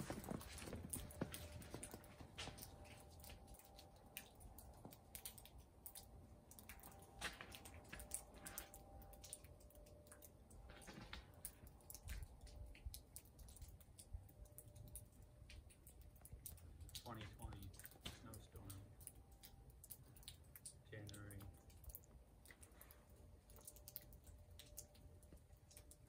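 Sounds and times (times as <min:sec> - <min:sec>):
faint clicks and crackles: 0:00.0 - 0:26.0.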